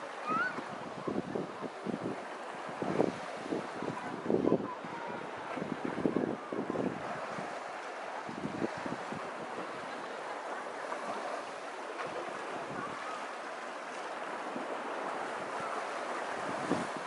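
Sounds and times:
wind buffeting microphone: 0:00.0 - 0:13.3, 0:13.9 - 0:17.0
small waves washing on sand: 0:00.0 - 0:17.0.

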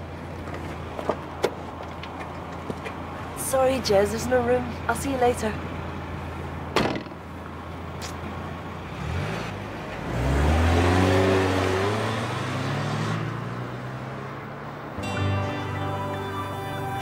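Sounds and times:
car engine revving and accelerating: 0:08.8 - 0:14.6.

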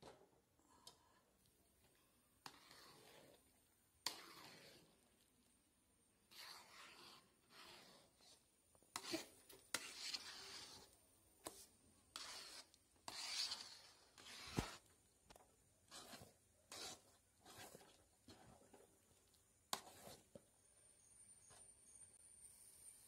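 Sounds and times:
metal spatula scraping pan: 0:02.4 - 0:03.4, 0:04.0 - 0:05.0, 0:06.3 - 0:14.9, 0:15.9 - 0:18.9, 0:19.7 - 0:20.4.

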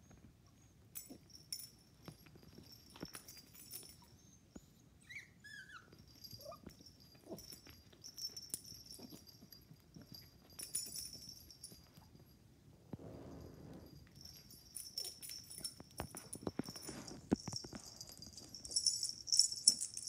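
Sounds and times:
puppy squeaky whines: 0:03.8 - 0:07.8.

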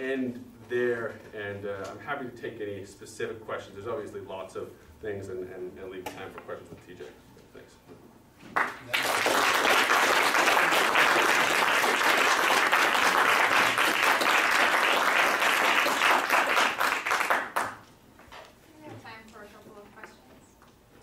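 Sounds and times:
audience applauding: 0:08.6 - 0:17.8.

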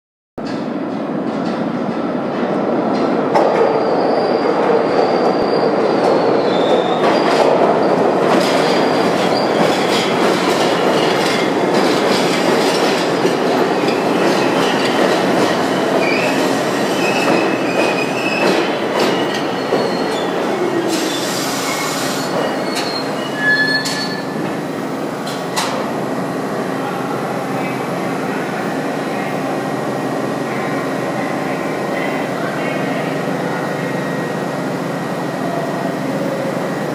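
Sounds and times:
wheel and brake squeals: 0:16.0 - 0:24.4.

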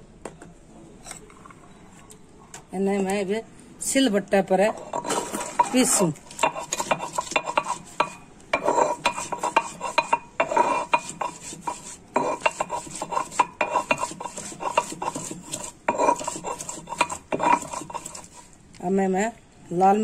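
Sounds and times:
stone muller knocking and scraping: 0:04.7 - 0:18.4.

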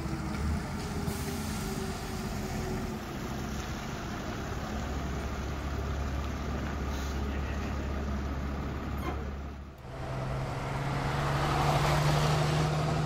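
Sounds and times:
diesel truck engine rumbling: 0:00.0 - 0:13.0.

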